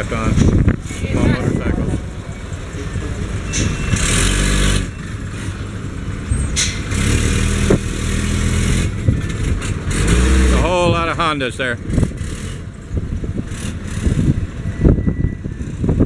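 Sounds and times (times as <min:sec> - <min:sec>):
diesel truck engine running: 0:00.0 - 0:16.0.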